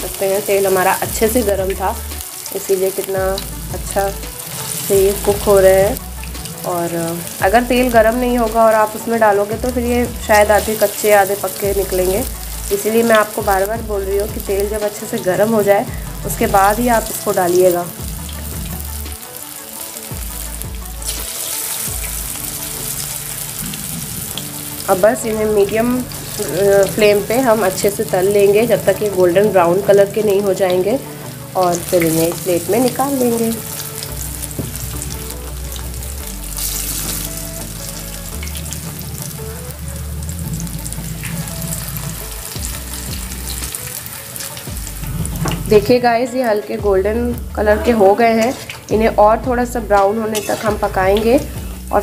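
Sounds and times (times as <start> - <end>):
background music: 0.0 - 52.0
food deep-frying in oil: 0.0 - 52.0.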